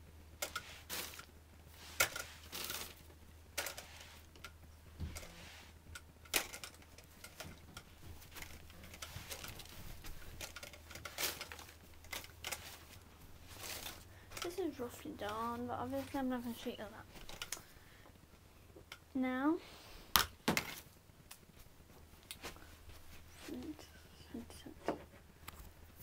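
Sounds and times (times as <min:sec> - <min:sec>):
newspaper rustling and crackling: 0:00.5 - 0:04.3, 0:06.3 - 0:17.6.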